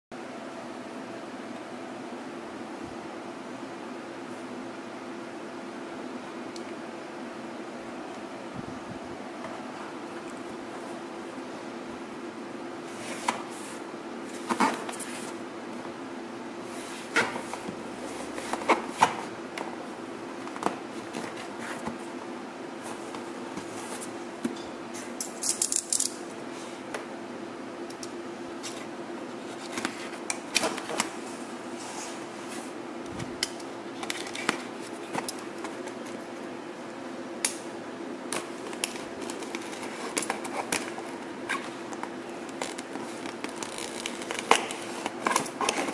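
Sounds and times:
steady low hum: 0:00.2 - 0:45.9.

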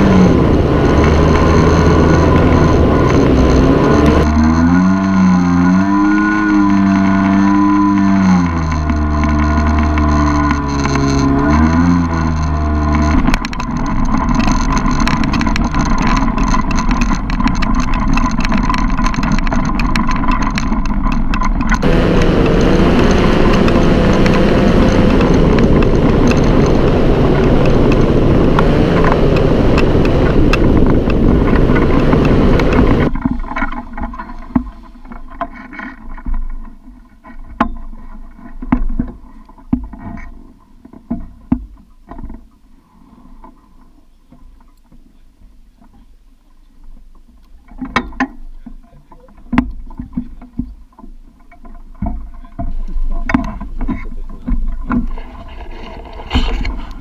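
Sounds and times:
paramotor engine and propeller: 0:00.0 - 0:39.1, 0:51.6 - 0:57.0
knocks and clicks: 0:06.2 - 0:34.7.

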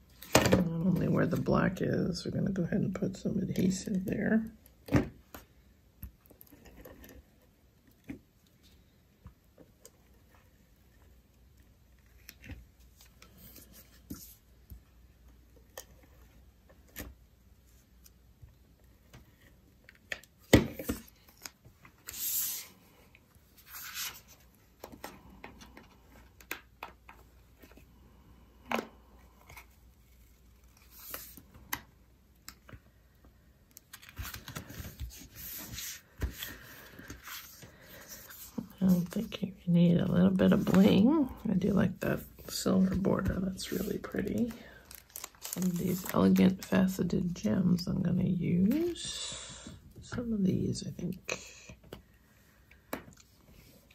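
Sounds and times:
card and plastic sheets rustling: 0:33.7 - 0:39.4, 0:40.2 - 0:47.8.

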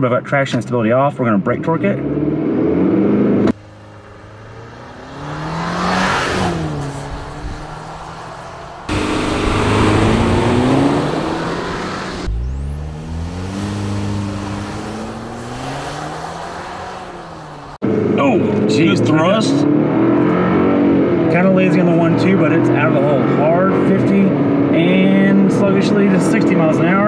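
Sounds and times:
truck engine accelerating hard: 0:01.8 - 0:27.0.

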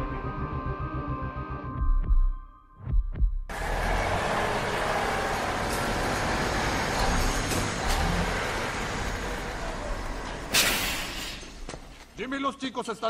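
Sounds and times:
loud crash: 0:03.5 - 0:11.7
truck engine rumbling: 0:03.5 - 0:12.2.

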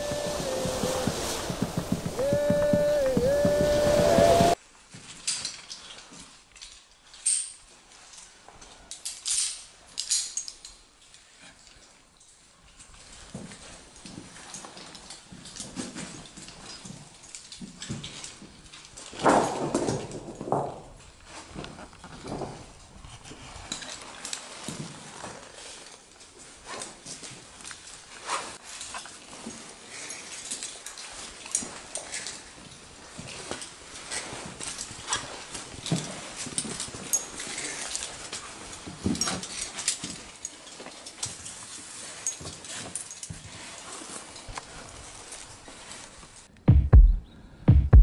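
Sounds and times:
faint hiss: 0:00.0 - 0:04.6
knocks clicks and scrapes: 0:00.0 - 0:04.6.

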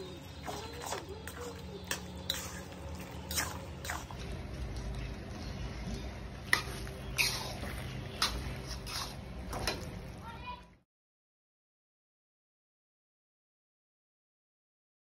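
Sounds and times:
metal spatula scraping pan: 0:00.0 - 0:04.2, 0:06.4 - 0:09.9
wet squelching of pasta: 0:00.0 - 0:05.4, 0:06.0 - 0:10.2
steady low hum: 0:00.0 - 0:10.3.

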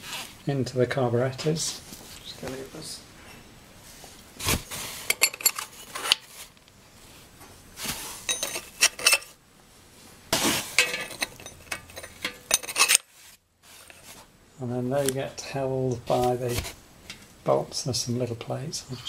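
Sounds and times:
metal parts clinking: 0:05.1 - 0:06.2, 0:08.3 - 0:09.4, 0:10.8 - 0:13.1
metal scraping: 0:07.8 - 0:09.4, 0:10.4 - 0:13.1.

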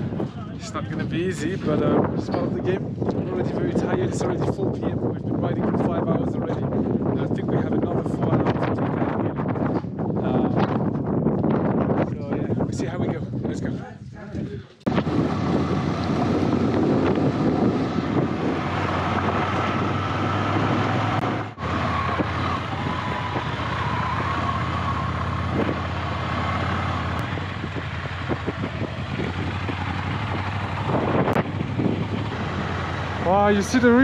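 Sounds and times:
road noise: 0:00.0 - 0:05.8, 0:14.8 - 0:34.0
wind noise: 0:00.0 - 0:34.0
motorcycle engine running: 0:14.9 - 0:34.0.

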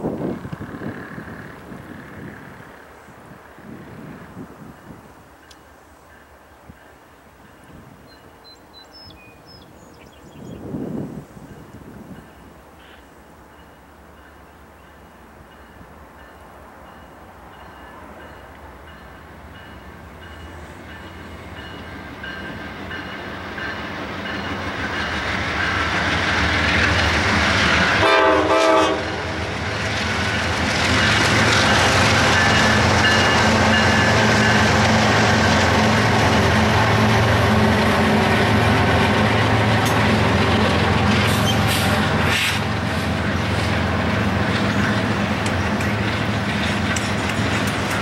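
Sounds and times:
diesel locomotive engines rumbling: 0:00.0 - 0:48.0
train horn blast: 0:27.7 - 0:29.5.

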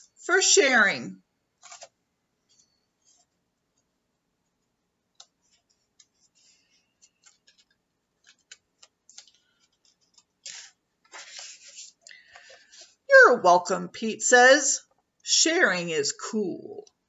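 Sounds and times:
page turning rustle: 0:01.6 - 0:02.0, 0:05.4 - 0:12.9.

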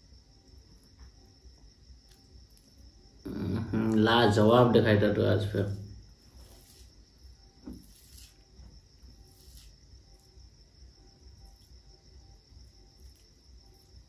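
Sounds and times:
fingers squishing rice and gravy: 0:06.3 - 0:10.5.

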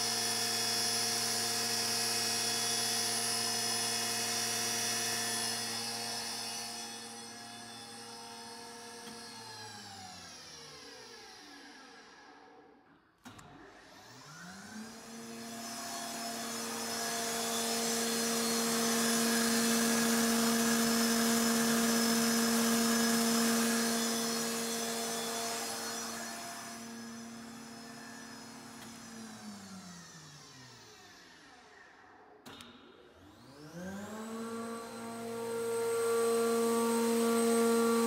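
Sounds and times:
cutter spindles whining: 0:00.0 - 0:38.0.

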